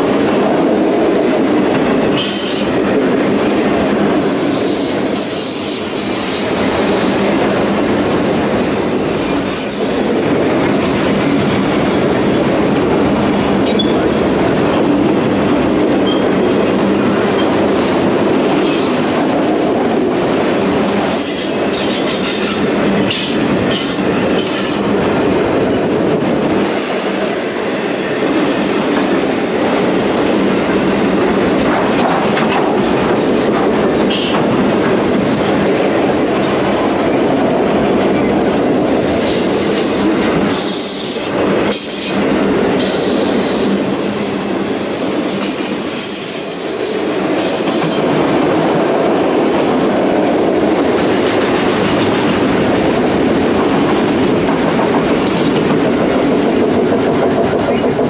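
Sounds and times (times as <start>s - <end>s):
train wheels rumbling on rail: 0.0s - 58.0s
high wheel squeal: 4.1s - 7.0s.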